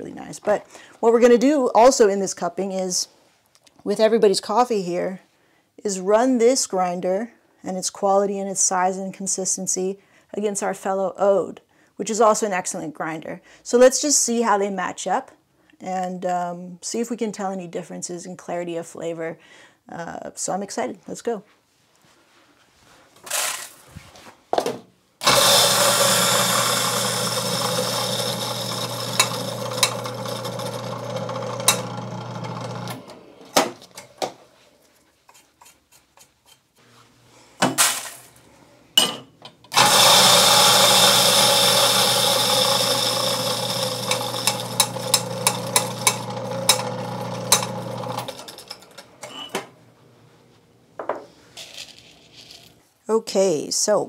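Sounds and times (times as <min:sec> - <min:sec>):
coffee grinder grinding beans: 0:23.3 - 0:23.7, 0:25.2 - 0:33.5, 0:39.7 - 0:49.0, 0:51.6 - 0:52.8.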